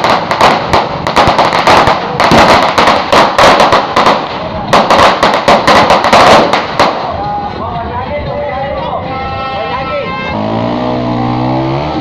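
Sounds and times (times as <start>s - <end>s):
firecrackers cracking: 0.0s - 7.6s.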